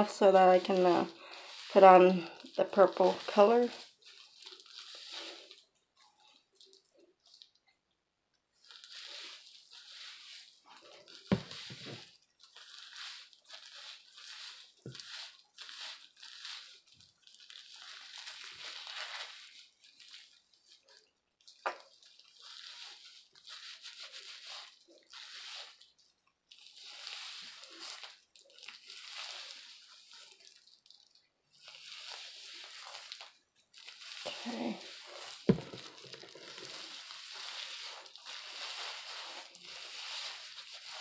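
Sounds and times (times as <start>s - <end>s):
gloved fingers rubbing wet hair: 0.0s - 6.8s, 8.7s - 20.9s, 26.7s - 30.6s, 31.5s - 41.0s.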